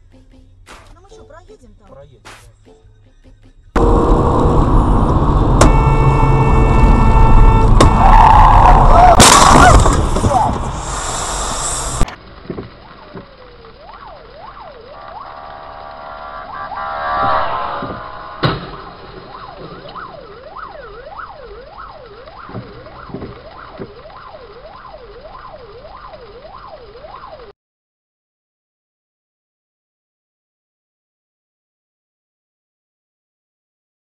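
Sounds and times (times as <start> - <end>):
siren yelping: 3.8 - 10.7, 12.7 - 27.5
loud noisy rush: 3.8 - 12.0, 12.9 - 24.8
steady tone: 3.8 - 12.1, 12.7 - 27.5
sharp bang: 16.0 - 20.2.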